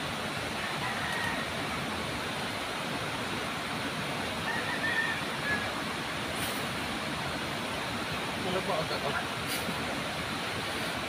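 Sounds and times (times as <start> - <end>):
river water pouring over weir: 0.0 - 11.0.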